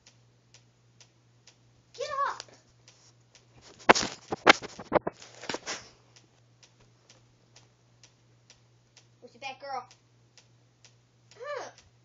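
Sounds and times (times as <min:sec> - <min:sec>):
faint ticks: 0:00.0 - 0:03.5, 0:06.1 - 0:09.1, 0:09.8 - 0:12.0
dog brushing against camera: 0:03.6 - 0:05.9.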